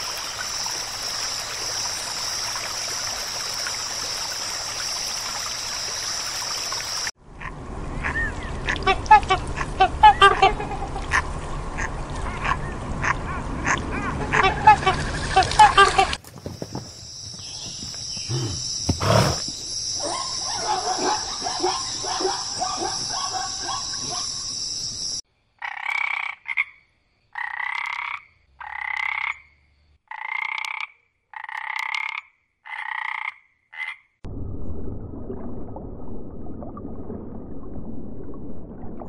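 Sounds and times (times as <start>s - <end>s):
short calls: 17.6s - 19.5s
frog croaking: 25.6s - 34.1s.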